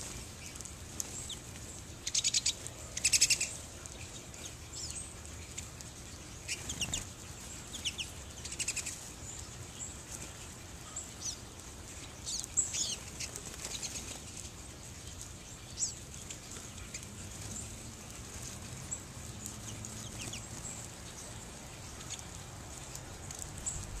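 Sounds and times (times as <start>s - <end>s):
finches chirping: 0.0s - 24.0s
low background rumble: 14.8s - 24.0s.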